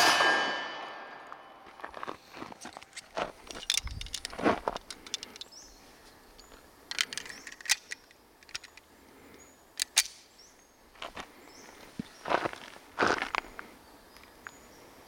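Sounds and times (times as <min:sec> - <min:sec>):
metallic pistol clicks: 0:06.9 - 0:08.9, 0:09.8 - 0:10.3.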